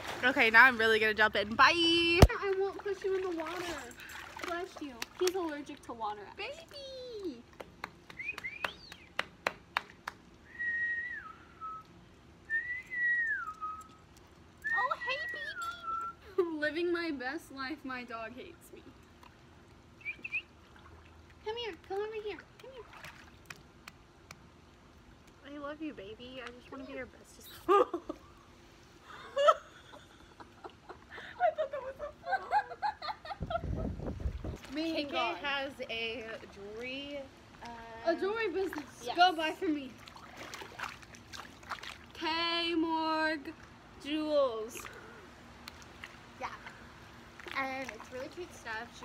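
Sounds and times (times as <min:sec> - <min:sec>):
young women laughing: 0:27.5 - 0:28.4, 0:29.0 - 0:34.0.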